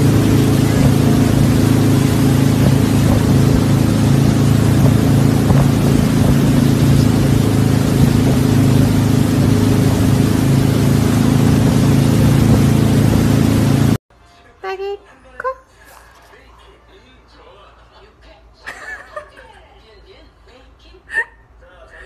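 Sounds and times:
churning wake water: 0.0s - 14.0s
motorboat engine running: 0.0s - 14.0s
wind: 0.0s - 14.0s.

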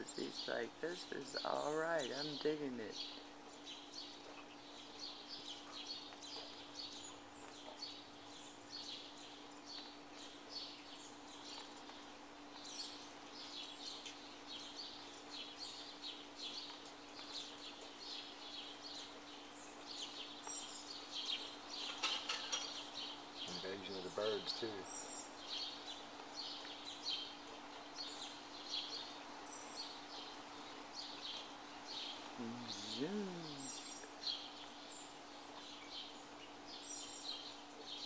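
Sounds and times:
birds chirping: 0.0s - 38.0s
faint steady hum: 22.8s - 38.0s.

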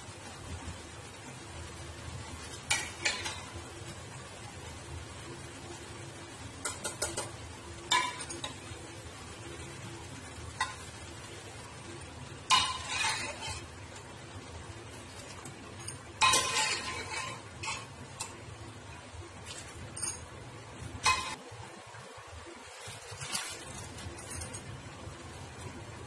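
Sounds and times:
faint steady hum: 0.0s - 26.0s
gravy sizzling in a pan: 0.0s - 26.0s
metal utensils clinking on pan: 2.7s - 3.6s, 6.6s - 7.3s, 7.9s - 8.7s, 10.6s - 10.9s, 12.4s - 14.0s, 15.1s - 18.4s, 19.5s - 20.4s, 21.0s - 21.4s.

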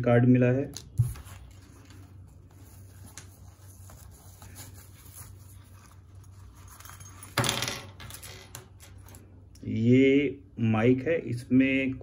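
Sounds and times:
cloth pouch rustling: 1.0s - 7.1s.

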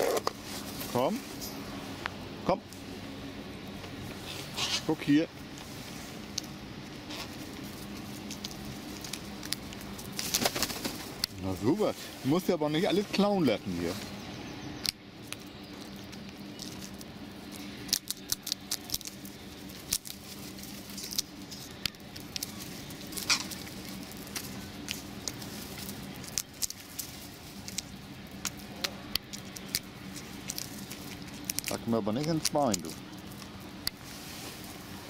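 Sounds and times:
low background hum: 0.0s - 35.0s
crow pecking and cracking a shell: 6.3s - 11.6s, 14.0s - 34.8s.

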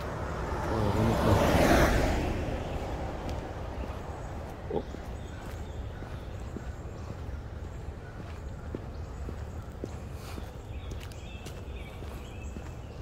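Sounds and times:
car driving past: 0.0s - 5.9s.

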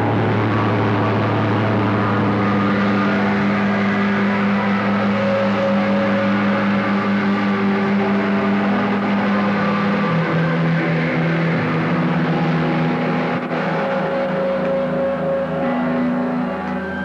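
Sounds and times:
distorted electric guitars: 0.0s - 17.0s.

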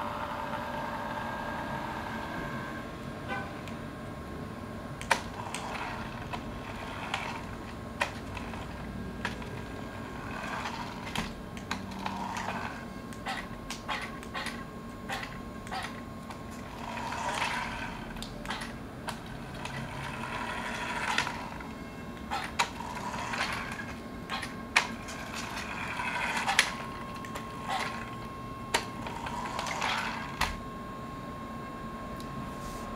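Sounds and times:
small electric motors whining: 5.0s - 30.6s.

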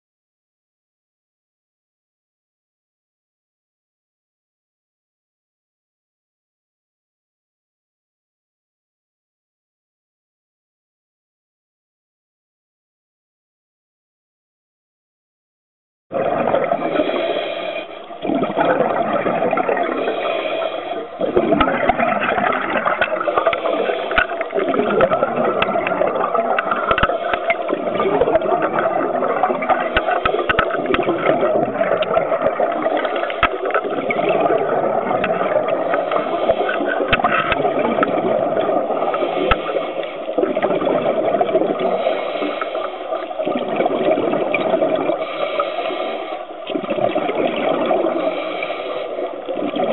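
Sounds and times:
muffled underwater bubbles gurgling: 16.1s - 49.9s
faint clicks: 22.8s - 26.0s, 26.6s - 27.6s, 29.9s - 31.1s.

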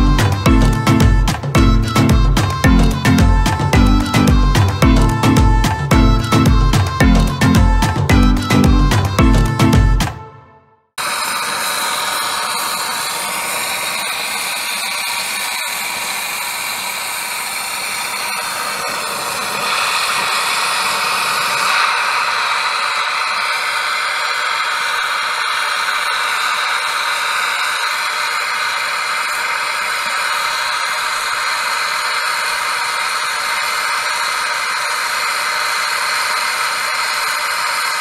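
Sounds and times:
gas torch flame hissing: 11.0s - 38.0s.

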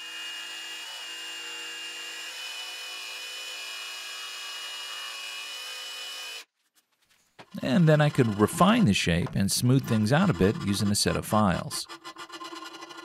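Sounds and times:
jigsaw cutting wood: 0.0s - 6.5s.

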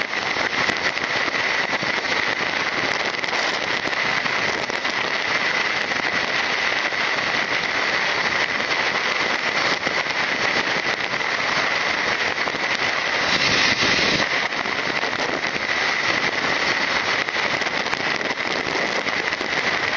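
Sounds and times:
constant crackling: 0.0s - 19.9s
wind rushing over microphone: 10.9s - 19.5s.

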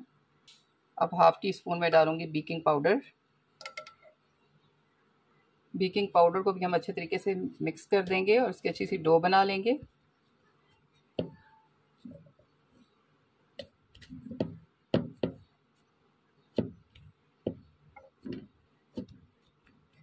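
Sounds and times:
spatula knocking and scraping bowl: 13.6s - 15.5s, 16.6s - 19.2s.

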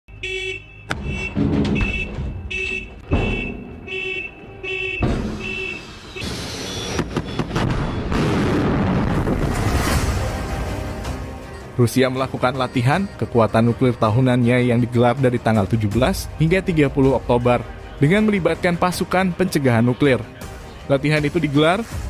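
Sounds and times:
alarm horn blasts: 0.1s - 8.2s
heavy clunks: 0.9s - 4.3s, 4.9s - 5.8s
missile launch roar: 6.0s - 10.7s.

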